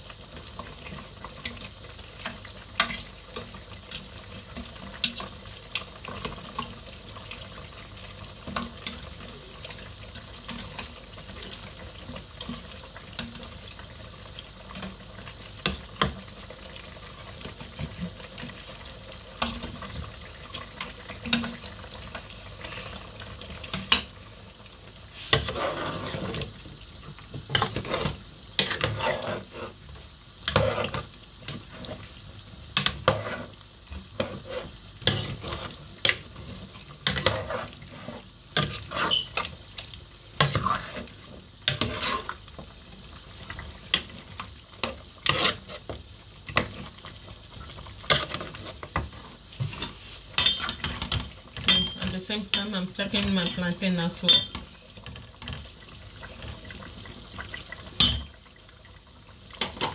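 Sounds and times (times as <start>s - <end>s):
frying sizzle: 0.0s - 59.9s
spoon scraping metal pot: 25.3s - 26.4s, 27.5s - 29.8s, 30.5s - 31.0s, 32.8s - 35.8s, 37.0s - 39.4s, 40.4s - 42.4s, 45.2s - 45.9s.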